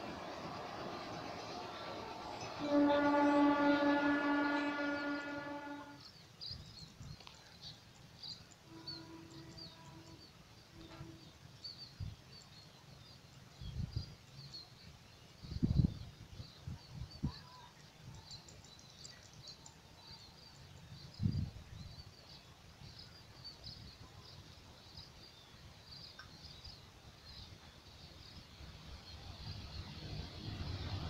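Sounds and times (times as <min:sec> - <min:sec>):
distant faint horn: 0:00.0 - 0:06.1, 0:08.6 - 0:11.4
passing train rumble: 0:00.0 - 0:06.1, 0:27.6 - 0:31.0
birds chirping: 0:00.0 - 0:31.0
locomotive horn blast: 0:00.8 - 0:06.0, 0:08.6 - 0:11.3.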